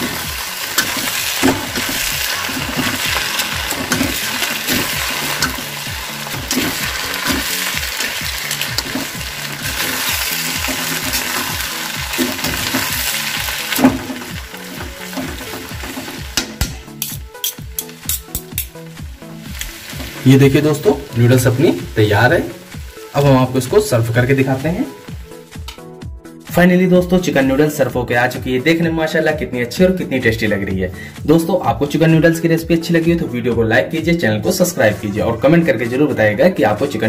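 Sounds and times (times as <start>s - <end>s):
food sizzling in a wok: 0.0s - 26.4s
spoon scraping a pan: 0.1s - 16.3s, 16.9s - 18.8s.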